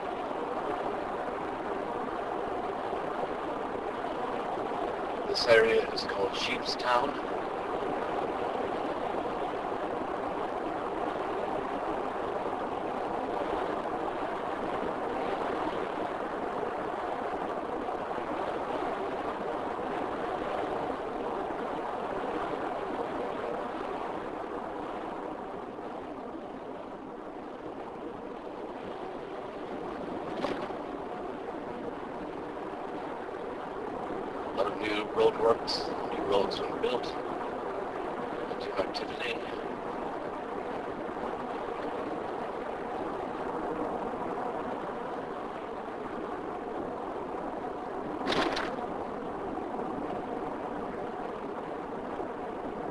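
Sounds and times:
car road and tyre noise: 0.0s - 52.9s.

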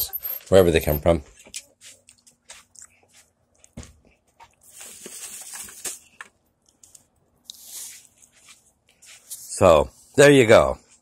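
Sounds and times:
paper crinkling: 4.4s - 9.5s.

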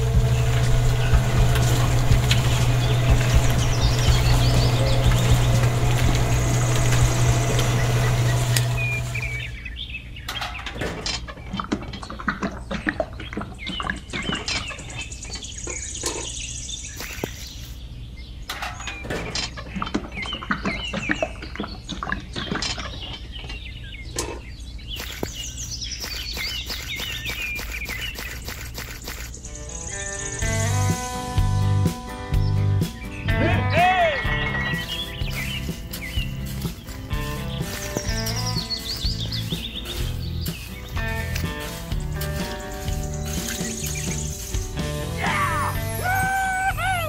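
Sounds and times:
small motor humming: 0.0s - 9.6s, 25.0s - 29.5s
birds chirping: 0.0s - 47.0s.

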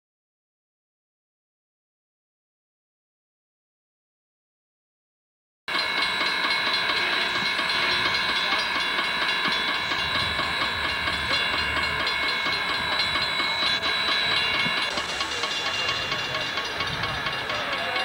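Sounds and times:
rail noise: 5.7s - 18.0s
steady high tones: 5.7s - 18.0s
steam hissing: 5.7s - 18.0s.

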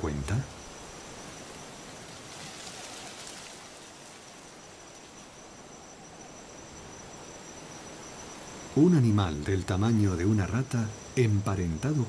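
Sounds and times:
crickets chirping: 0.0s - 12.0s
forest ambience hiss: 0.0s - 12.0s.

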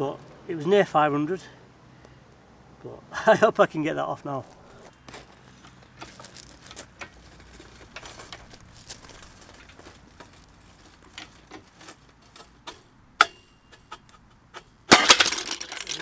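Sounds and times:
loud metallic crash: 14.9s - 16.0s.

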